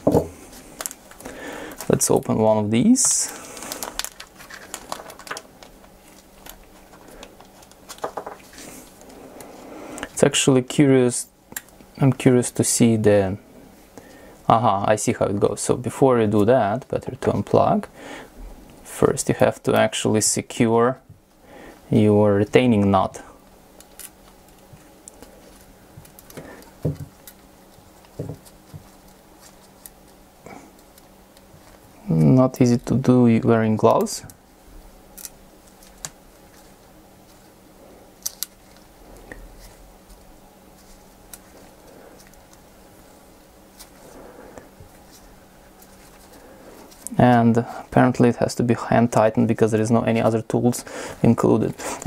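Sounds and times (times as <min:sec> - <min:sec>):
plastic bag crinkling: 0:02.9 - 0:08.9.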